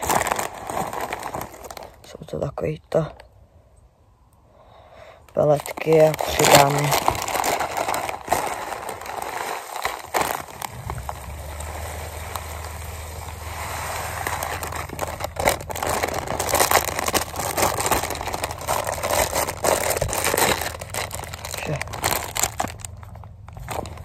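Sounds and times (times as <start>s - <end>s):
plastic bag of pellets rustling: 0.0s - 2.4s, 5.3s - 24.0s
low rumble: 10.1s - 24.0s.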